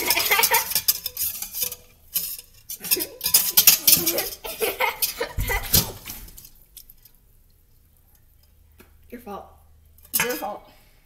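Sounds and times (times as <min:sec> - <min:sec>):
whisk clinking against metal bowl: 0:00.0 - 0:05.3.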